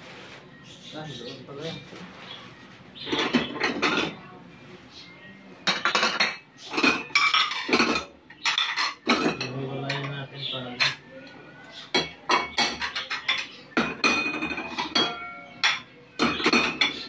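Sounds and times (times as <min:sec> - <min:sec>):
ceramic plates clattering: 0:03.0 - 0:04.2, 0:05.6 - 0:11.1, 0:11.9 - 0:17.0.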